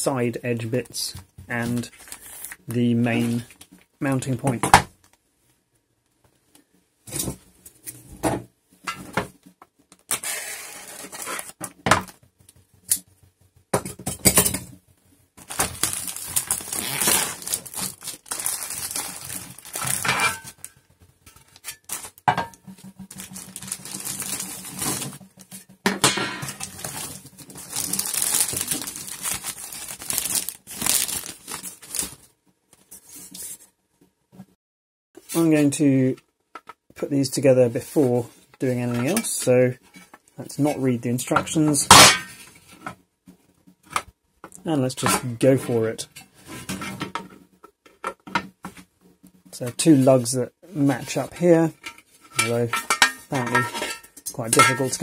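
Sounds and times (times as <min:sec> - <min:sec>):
plastic bags crinkling: 0:01.6 - 0:02.6, 0:15.4 - 0:20.7, 0:21.4 - 0:25.8, 0:26.4 - 0:32.3.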